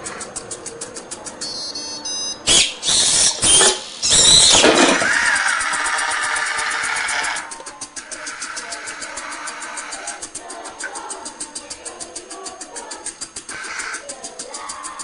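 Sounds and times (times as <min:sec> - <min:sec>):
servo motors buzzing and whining: 0:02.5 - 0:11.9.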